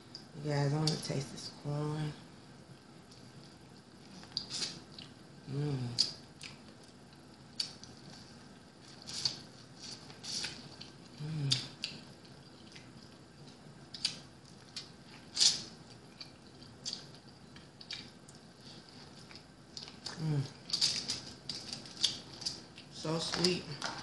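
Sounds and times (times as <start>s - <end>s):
wet chewing: 3.1s - 5.2s, 5.8s - 24.0s.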